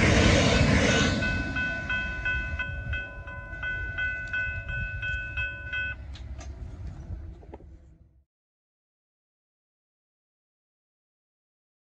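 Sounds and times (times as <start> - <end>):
electric train rumble: 0.0 - 8.2
level crossing bell ringing: 1.2 - 6.0.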